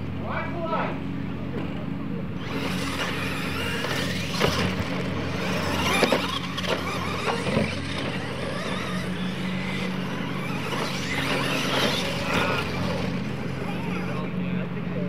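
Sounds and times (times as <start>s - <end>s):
low hum: 0.9s - 15.0s
rc truck motors whining: 1.5s - 15.0s.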